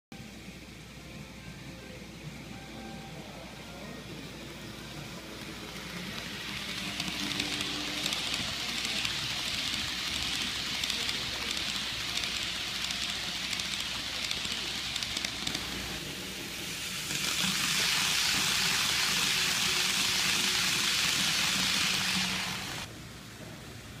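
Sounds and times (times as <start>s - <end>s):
model train whirring: 3.1s - 22.9s
faint rapid clicking: 5.4s - 15.7s.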